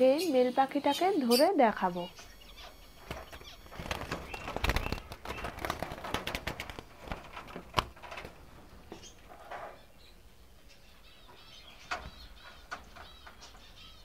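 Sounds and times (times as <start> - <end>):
birds fluttering wings: 2.5 - 9.6
wire bird cage rattling: 2.6 - 9.8, 11.8 - 14.0.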